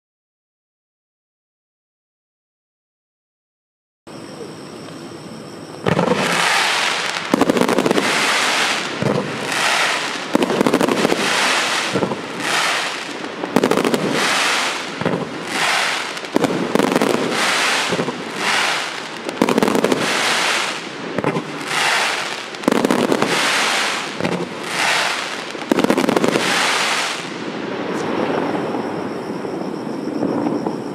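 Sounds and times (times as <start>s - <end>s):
firework bangs with crackling hiss: 5.8s - 29.5s.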